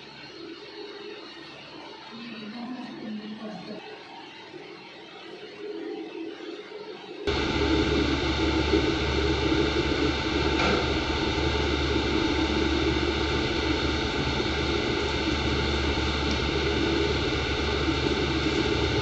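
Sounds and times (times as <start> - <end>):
motor whirring with low hum: 7.3 - 19.0.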